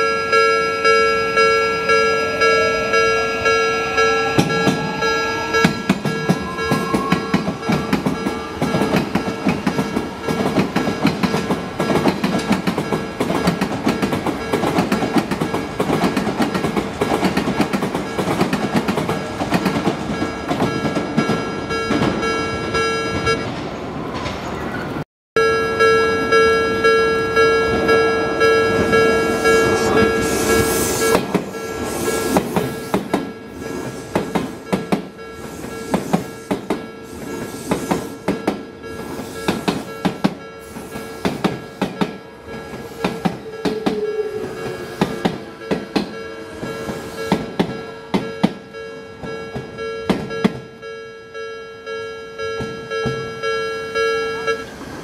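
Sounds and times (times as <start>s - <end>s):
crossing warning bell ringing: 0.0s - 23.7s, 25.4s - 55.0s
train wheels clattering over rail joints: 5.7s - 22.3s, 30.3s - 48.6s.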